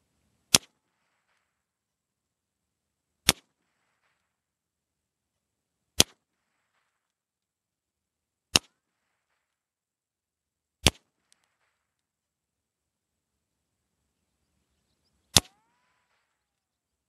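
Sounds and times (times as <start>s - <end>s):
gunshots: 3.2s - 4.4s, 15.3s - 16.5s.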